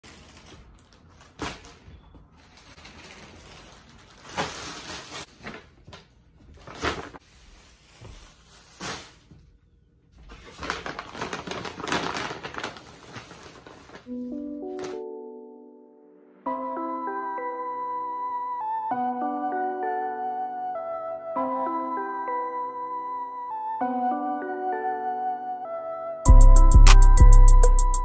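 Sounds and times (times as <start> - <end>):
bags bumping down: 0.0 - 7.2, 10.2 - 14.1
shopping bags rustling: 0.0 - 9.6, 10.2 - 15.0.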